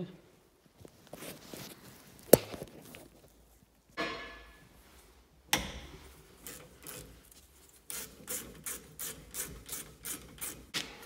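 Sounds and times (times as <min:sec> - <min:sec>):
ratchet wrench rasping: 0:06.4 - 0:10.7.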